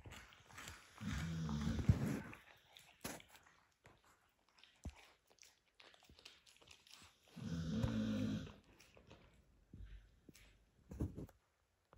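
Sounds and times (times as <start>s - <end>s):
puppy chewing bone: 0.0s - 11.4s
puppy groaning: 7.4s - 8.6s.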